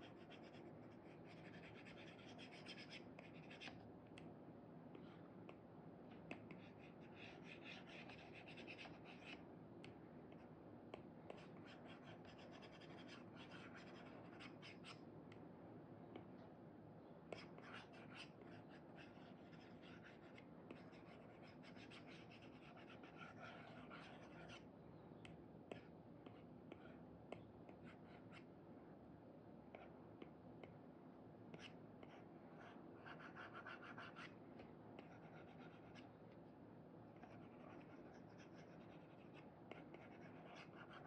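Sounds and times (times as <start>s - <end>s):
pen scratching on screen: 0.0s - 3.8s, 6.5s - 9.4s, 11.3s - 15.0s, 17.4s - 24.6s, 31.5s - 34.3s, 35.0s - 36.1s, 37.2s - 41.0s.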